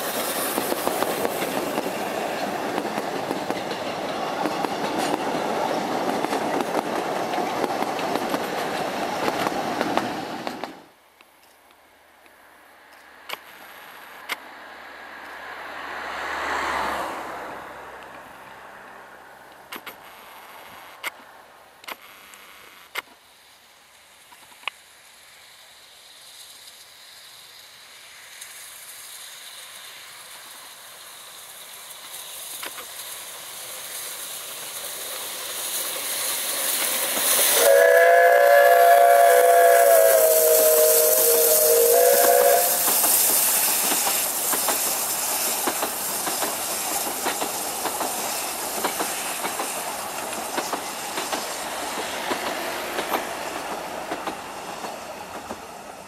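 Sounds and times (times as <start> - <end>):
train wheels clickety-clack: 0.0 - 10.9, 26.2 - 56.0
steam locomotive approaching: 0.0 - 11.0, 12.3 - 21.6, 22.9 - 56.0
steam whistle chord: 37.5 - 42.9.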